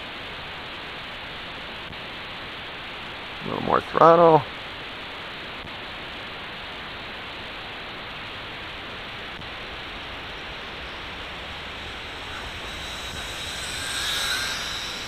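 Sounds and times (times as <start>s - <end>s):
steady rushing noise: 4.6s - 15.0s
quadcopter propellers whining: 8.2s - 15.0s.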